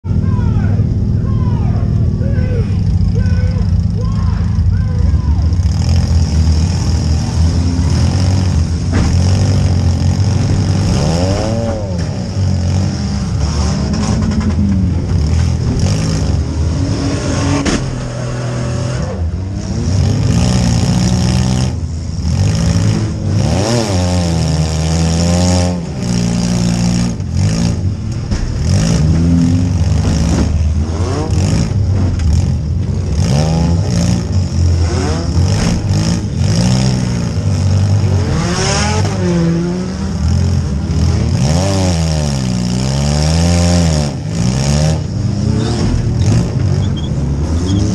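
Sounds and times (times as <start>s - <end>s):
car engine revving: 0.0s - 47.9s
cars colliding with bangs: 8.4s - 18.8s, 27.0s - 33.1s, 34.7s - 36.5s, 45.0s - 47.9s.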